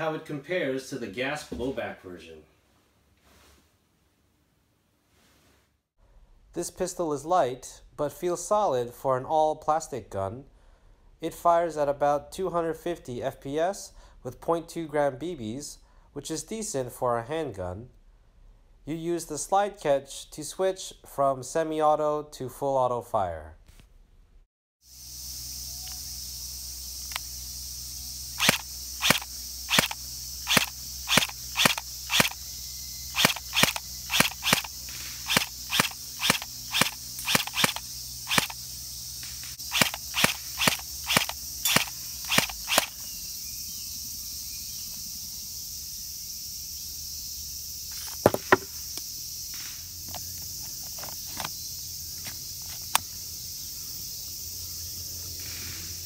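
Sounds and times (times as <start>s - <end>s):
high insect drone: 24.8s - 56.0s
pistol clicks: 39.7s - 43.0s.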